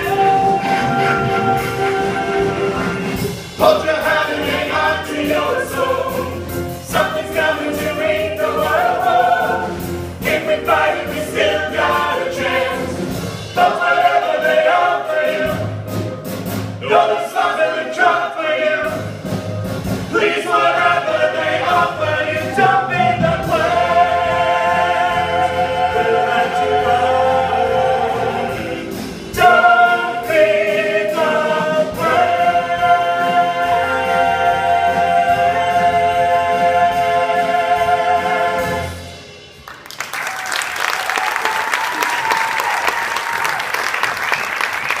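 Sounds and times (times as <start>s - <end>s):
cast singing in chorus with band: 0.0s - 15.8s, 16.8s - 19.4s, 20.1s - 39.2s
audience applause: 39.6s - 45.0s.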